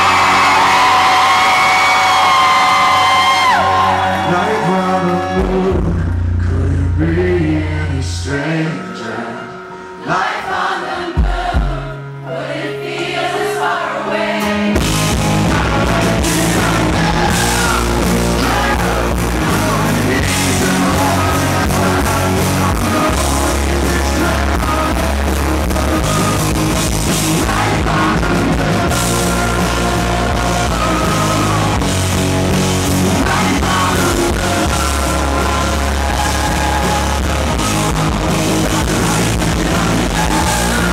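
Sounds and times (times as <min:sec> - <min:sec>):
drums: 0:00.0 - 0:07.1, 0:11.0 - 0:12.2, 0:14.4 - 0:40.9
live rock band playing: 0:00.0 - 0:08.9, 0:14.2 - 0:40.9
male lead vocal: 0:03.5 - 0:12.0, 0:14.8 - 0:40.9.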